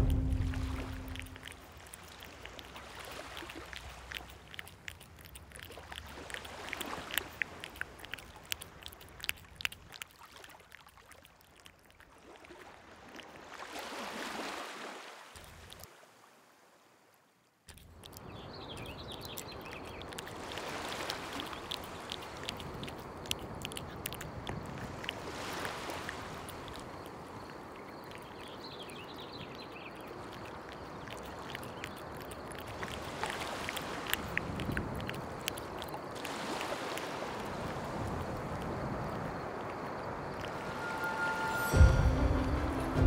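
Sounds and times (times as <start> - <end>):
cat lapping water from bowl: 0.0 - 13.8, 17.7 - 41.0
small waves on pebble beach: 13.4 - 15.3.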